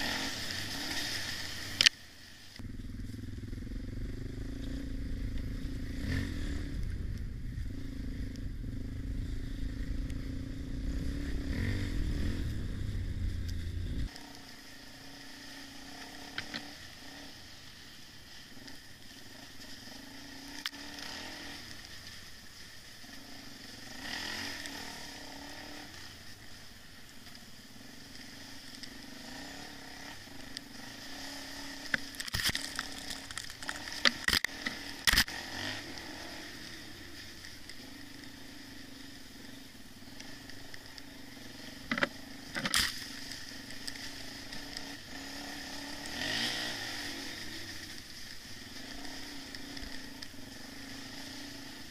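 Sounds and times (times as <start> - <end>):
dirt bike engine running: 0.0 - 51.9
motorbike engine: 2.6 - 51.9
wind noise on helmet: 6.4 - 14.1.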